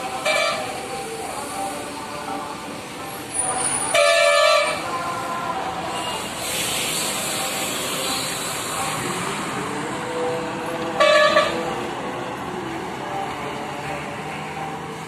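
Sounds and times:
bus departing: 0.0 - 15.0
truck passing: 0.0 - 15.0
vehicle horn blast: 0.2 - 0.7, 3.9 - 4.9, 11.0 - 11.6.

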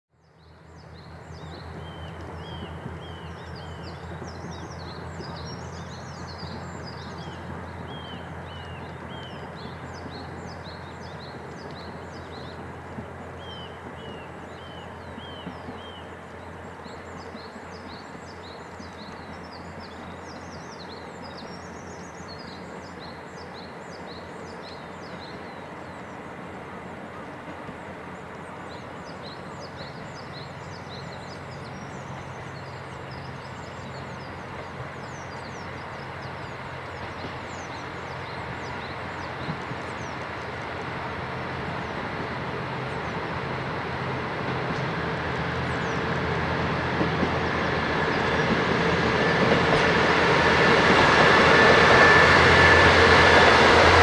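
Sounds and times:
small birds singing and chirping: 0.2 - 12.6, 13.4 - 26.2.

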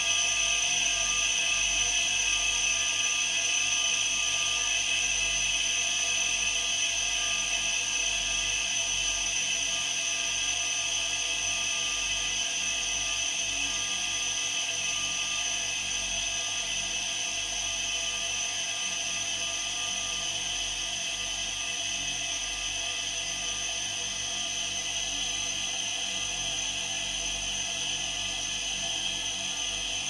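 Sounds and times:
compressors whining over low hum: 11.0 - 30.0.

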